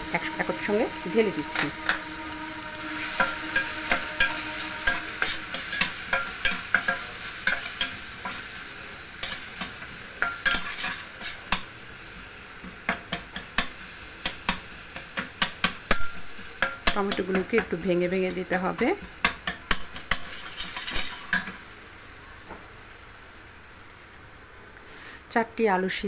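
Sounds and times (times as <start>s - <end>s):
metal spatula scraping pan: 0.0s - 8.5s, 9.2s - 11.6s, 19.7s - 21.5s
frying sizzle: 0.0s - 26.0s.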